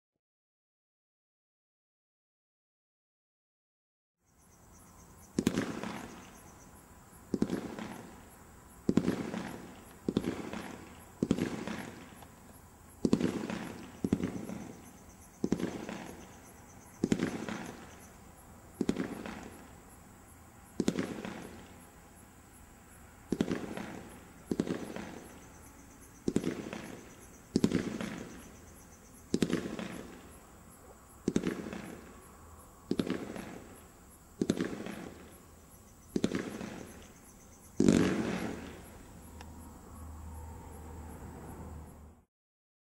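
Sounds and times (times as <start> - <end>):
firework shots banging: 5.3 - 6.5, 7.3 - 18.1, 18.8 - 19.8, 20.7 - 21.8, 23.3 - 25.5, 26.2 - 28.6, 29.3 - 30.4, 31.2 - 32.2, 32.9 - 35.4, 36.1 - 37.2, 37.8 - 39.0.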